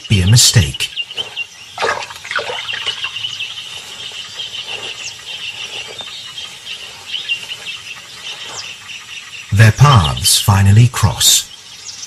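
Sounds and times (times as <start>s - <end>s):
high rapid chirping calls: 0.0s - 12.0s.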